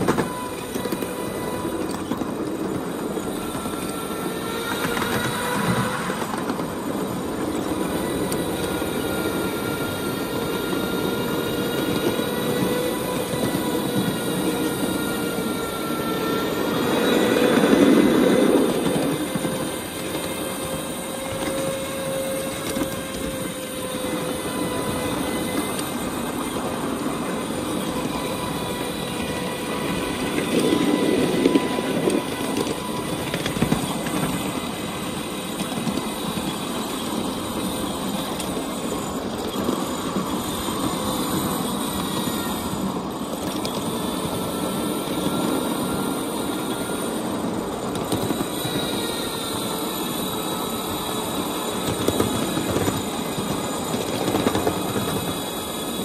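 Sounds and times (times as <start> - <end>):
train wheels rattling on rail: 0.0 - 56.0.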